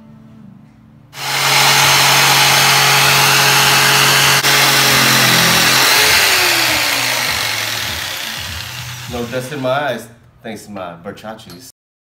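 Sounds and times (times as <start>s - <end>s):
jigsaw cutting board: 1.2s - 9.8s.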